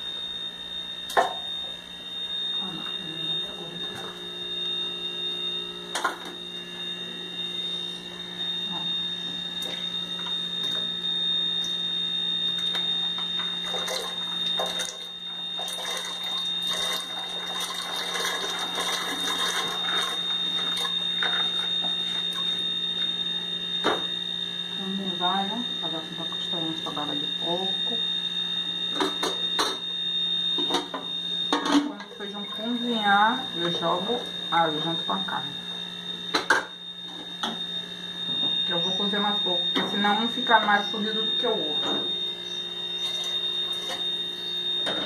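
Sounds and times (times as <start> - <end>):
low hum: 0.0 - 17.1
steady high whine: 0.0 - 45.0
dried beans clattering and splashing: 15.6 - 20.9.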